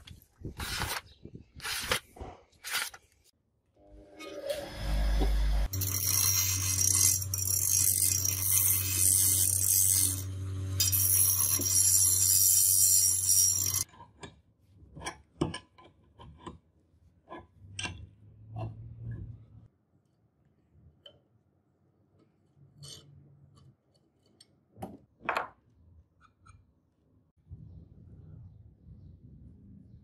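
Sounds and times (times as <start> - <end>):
steel bar grinding on wheel: 4.0 - 13.9
bench grinder motor hum: 4.2 - 13.8.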